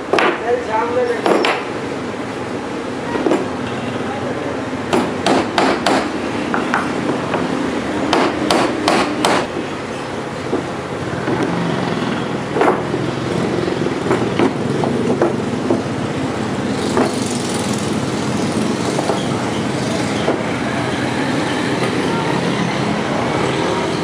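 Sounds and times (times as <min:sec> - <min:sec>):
wooden boards knocking: 0:12.6 - 0:12.9, 0:14.1 - 0:15.9.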